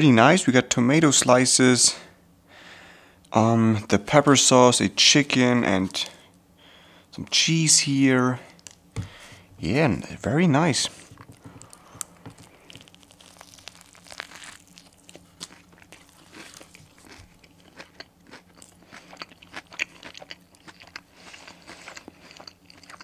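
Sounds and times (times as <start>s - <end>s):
crunchy chewing: 11.0s - 23.0s.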